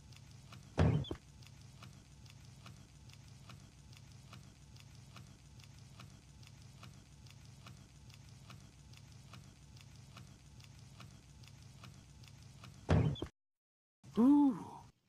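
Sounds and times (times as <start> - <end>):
soft even ticking: 0.0 - 12.9
vocal grunt: 14.1 - 14.8.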